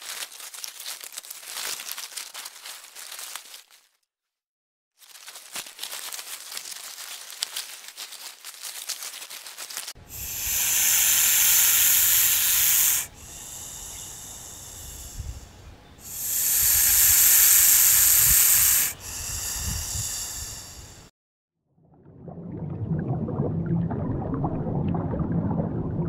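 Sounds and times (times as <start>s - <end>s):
snake hissing: 10.0s - 21.1s.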